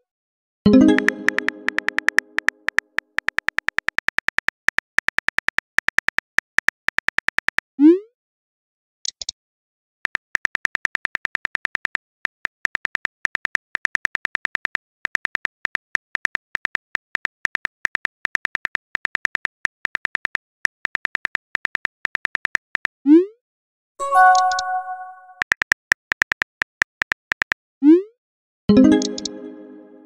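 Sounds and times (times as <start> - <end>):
phone keyboard typing clicks: 0.7 - 7.6, 24.1 - 27.6, 28.8 - 29.5.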